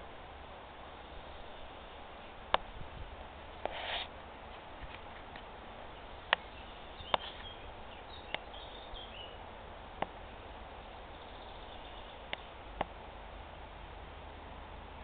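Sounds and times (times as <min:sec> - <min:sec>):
steady background hiss: 0:00.0 - 0:15.0
faint bird chirps: 0:05.9 - 0:09.4, 0:10.8 - 0:12.6.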